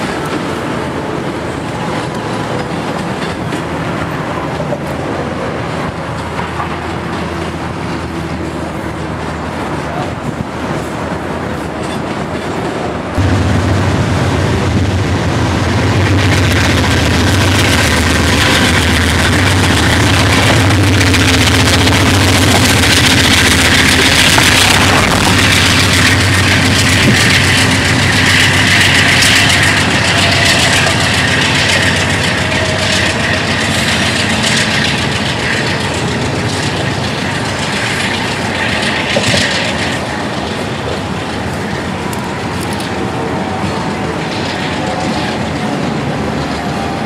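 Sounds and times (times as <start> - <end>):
wheels clicking over rail joints: 0.0 - 13.2, 16.0 - 47.0
diesel locomotives passing: 0.0 - 47.0
freight cars rolling past: 0.0 - 47.0.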